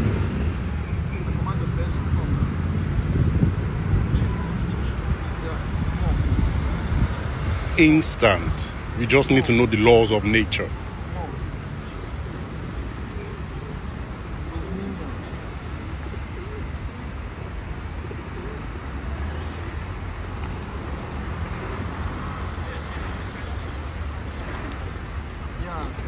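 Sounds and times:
pigeons cooing: 11.8s - 17.2s, 17.8s - 19.1s.

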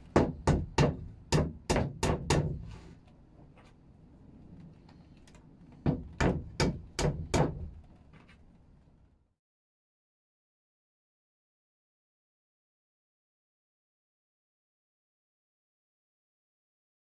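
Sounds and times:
hammer tapping wood: 0.2s - 2.6s, 5.9s - 7.7s.

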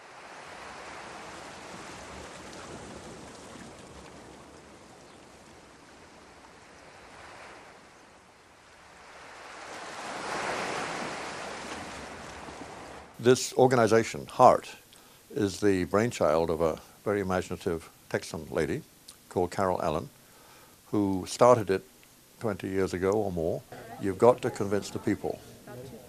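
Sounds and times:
ocean waves: 0.0s - 13.3s, 22.5s - 26.0s.

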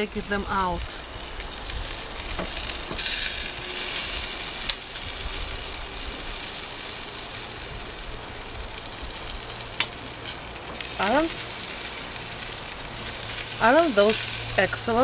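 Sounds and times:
chicken wings sizzling on a grill: 0.0s - 15.0s.

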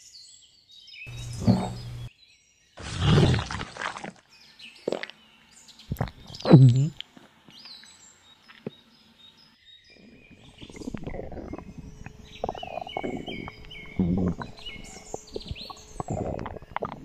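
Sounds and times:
birds chirping: 0.0s - 3.6s, 4.3s - 17.0s
wet squelching and stomach gurgling: 2.8s - 4.2s, 4.8s - 5.2s, 5.9s - 7.0s, 10.4s - 17.0s.

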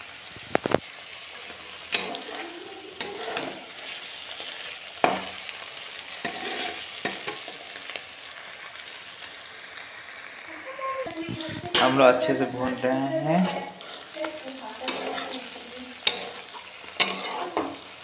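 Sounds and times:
food sizzling in oil: 0.0s - 18.0s
steel spatula scraping a pan: 1.4s - 5.5s, 6.1s - 7.7s, 11.3s - 18.0s.

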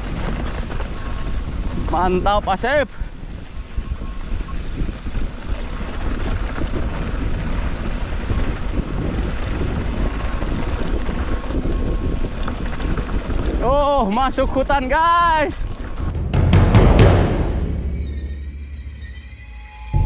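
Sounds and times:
wind on microphone: 0.0s - 14.6s
bike tyres rolling on dirt: 0.0s - 16.1s.

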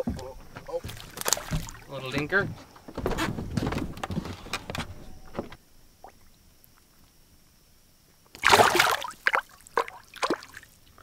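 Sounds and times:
water splash: 8.4s - 10.7s.

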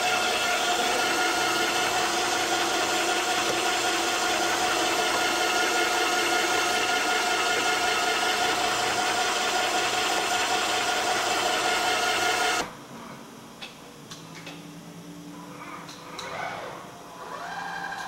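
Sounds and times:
assembly machinery running: 0.0s - 12.7s.

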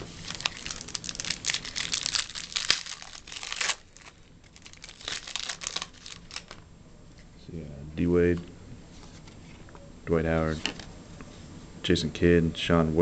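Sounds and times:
foil wrapper crinkling and tearing: 0.0s - 6.6s.

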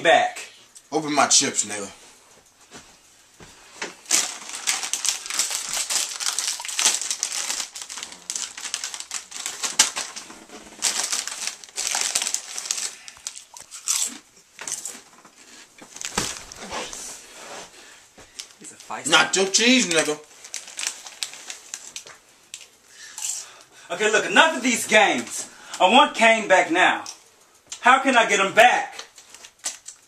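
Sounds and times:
plastic bag crinkling: 3.9s - 17.2s, 18.3s - 23.5s, 29.0s - 30.0s.

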